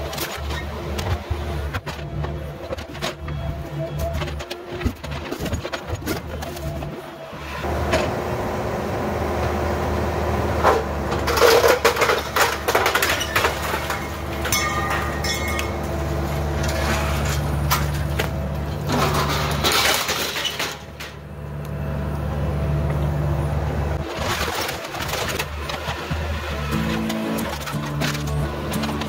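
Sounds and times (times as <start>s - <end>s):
excavator diesel engine running: 0.0s - 29.0s
falling debris crashing: 10.6s - 21.2s, 24.0s - 29.0s
boards cracking and splintering: 11.2s - 15.6s, 24.0s - 29.0s.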